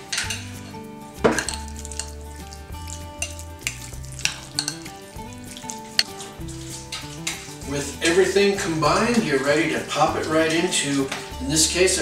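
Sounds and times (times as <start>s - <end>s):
spoon clinking against glass: 0.0s - 7.6s
spoon stirring food in bowl: 0.0s - 8.5s.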